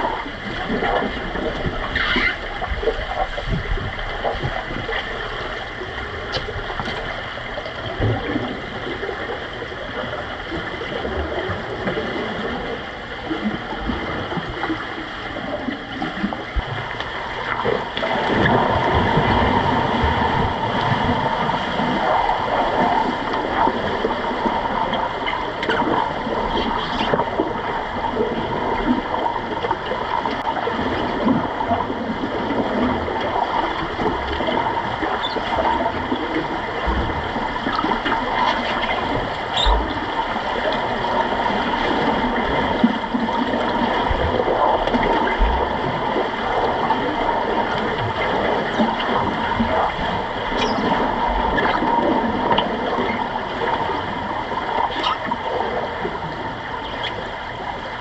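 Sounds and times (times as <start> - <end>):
underwater bubbling and gurgling: 0.0 - 58.0.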